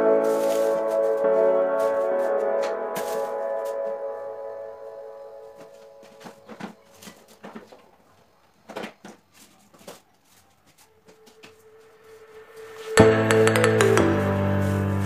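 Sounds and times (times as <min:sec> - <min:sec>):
background music: 0:00.0 - 0:07.0, 0:11.2 - 0:15.0.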